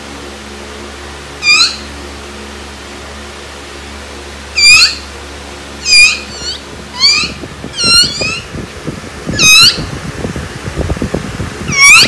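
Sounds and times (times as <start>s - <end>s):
small dog whining: 4.6s - 5.0s, 5.8s - 8.5s, 11.7s - 12.0s.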